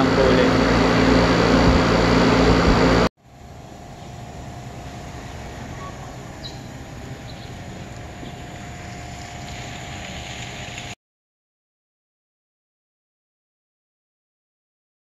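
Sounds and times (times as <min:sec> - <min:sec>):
refrigeration unit whirring: 0:00.0 - 0:11.0.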